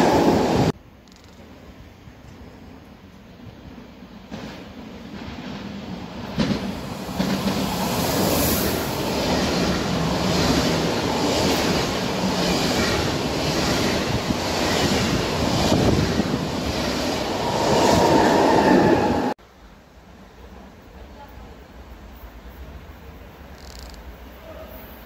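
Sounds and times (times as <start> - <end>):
train rushing past: 0.0 - 0.8, 3.4 - 19.4
locomotive whine: 9.2 - 19.4.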